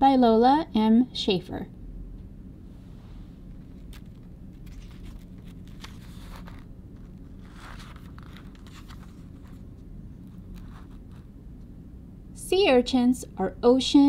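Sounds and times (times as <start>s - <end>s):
low steady hum: 0.0s - 14.0s
book pages turning: 3.5s - 11.3s
paper rustling: 3.6s - 11.3s.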